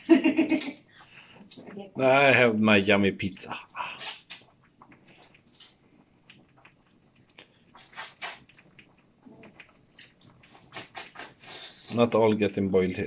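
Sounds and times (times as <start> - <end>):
crab shell crackling: 3.6 - 11.8
chewing: 4.1 - 11.4.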